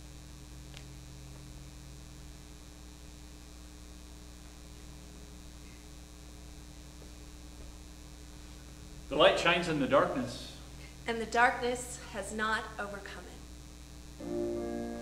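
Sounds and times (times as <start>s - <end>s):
electrical mains hum: 0.0s - 15.0s
faint hiss: 0.0s - 15.0s.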